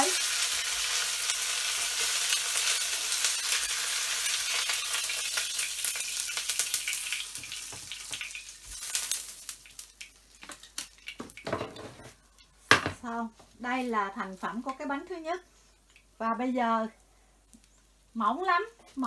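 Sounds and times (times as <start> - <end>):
crepe sizzling in hot oil: 0.0 - 11.6.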